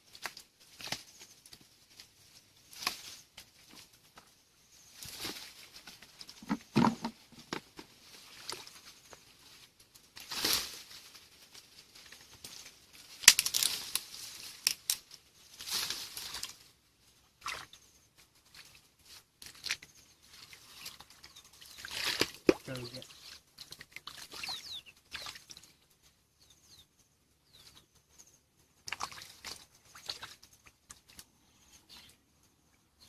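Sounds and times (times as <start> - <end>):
sticks crackling and snapping: 0.1 - 2.1, 2.7 - 3.9, 12.0 - 16.6
splashes in muddy water: 17.4 - 17.8, 20.5 - 25.6, 28.8 - 31.2.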